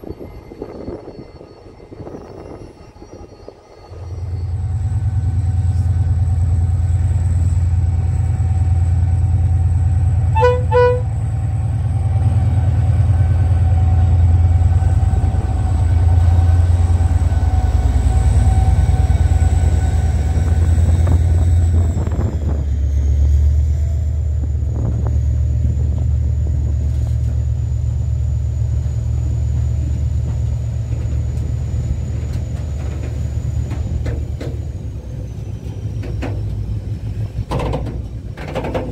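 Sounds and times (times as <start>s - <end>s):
diesel locomotive engine: 0.0s - 38.9s
train horn toots: 10.2s - 11.4s.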